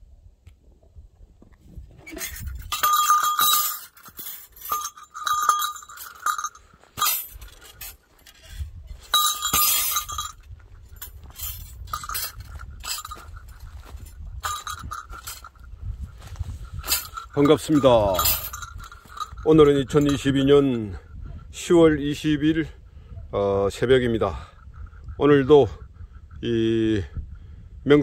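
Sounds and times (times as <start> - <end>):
small metal bell jingling: 2.1 - 20.5.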